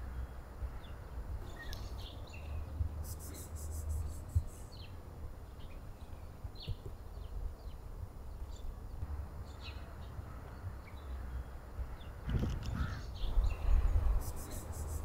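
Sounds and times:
bird chirps: 0:12.0 - 0:15.0.

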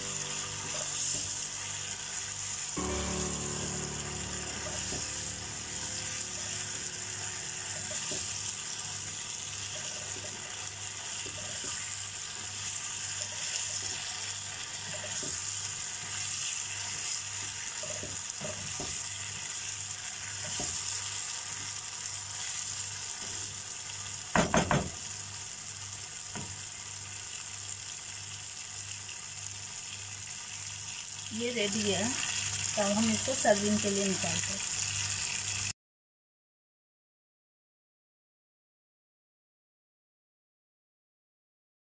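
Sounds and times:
meat sizzling in a pan: 0:00.0 - 0:35.8
wooden spoon scraping a pan: 0:07.6 - 0:19.5.

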